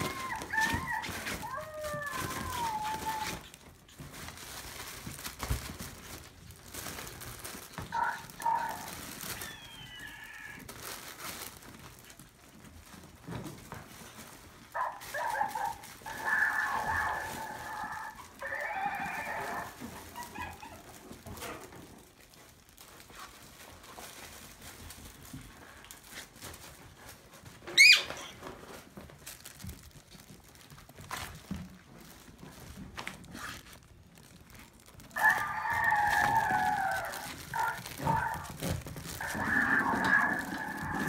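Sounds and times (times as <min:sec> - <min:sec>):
puppies yipping and squealing: 0:20.0 - 0:21.0, 0:27.7 - 0:28.4.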